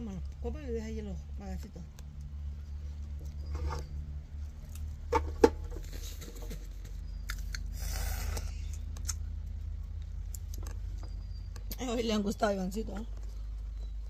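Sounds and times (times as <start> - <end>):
steady low rumble: 0.0 - 14.0
mouth clicks and sucking: 7.2 - 9.2
hissy slurps: 7.7 - 8.8.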